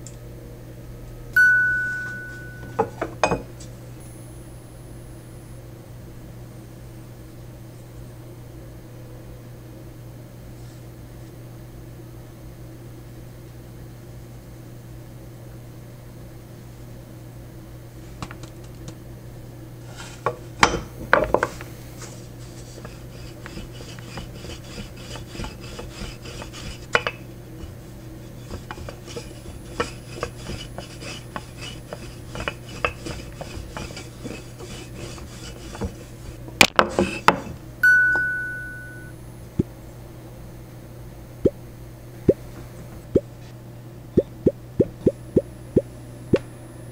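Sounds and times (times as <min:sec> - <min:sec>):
short metallic ring: 0:01.4 - 0:03.0, 0:37.8 - 0:39.1
rolling pin rolling dough: 0:19.9 - 0:37.6.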